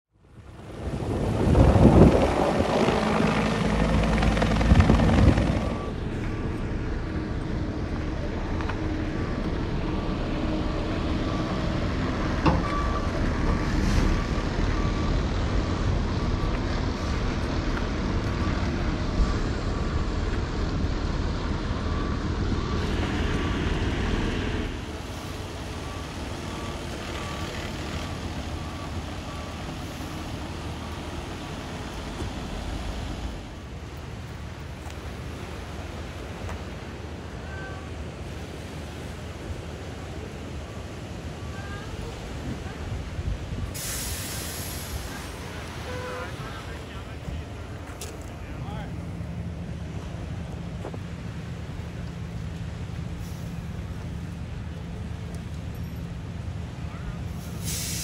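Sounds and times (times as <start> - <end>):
idling vehicles rumble: 0.2 - 58.0
helicopter rotor and engine: 0.6 - 13.6.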